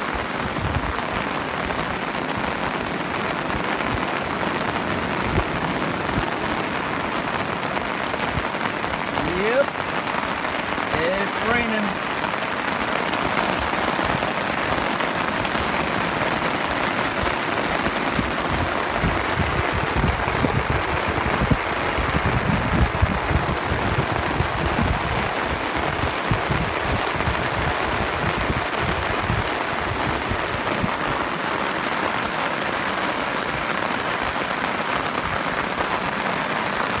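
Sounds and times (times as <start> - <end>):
ocean surf breaking: 0.0 - 37.0
wind buffeting microphone: 0.1 - 1.8, 12.3 - 32.7.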